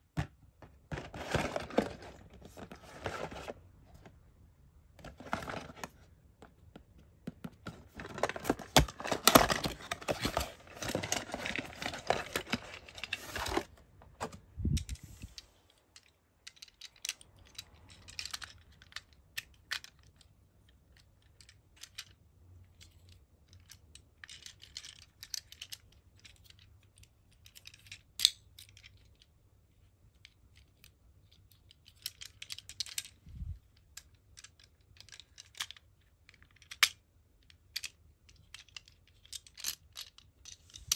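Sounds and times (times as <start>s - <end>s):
packaging rustling and tearing: 7.9s - 13.7s.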